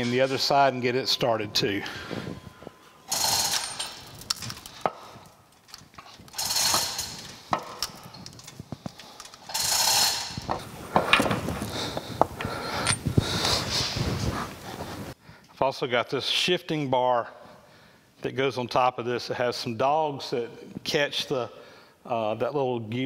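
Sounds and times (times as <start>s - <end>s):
rustling bursts: 2.0s - 12.2s
small metal clinks and taps: 3.1s - 9.6s.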